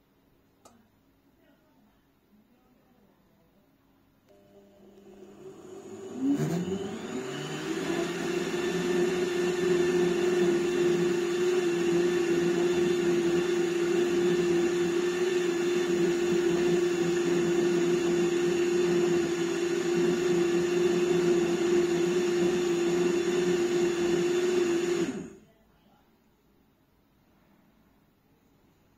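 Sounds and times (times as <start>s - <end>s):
electric appliance motor whirring: 4.3s - 25.4s.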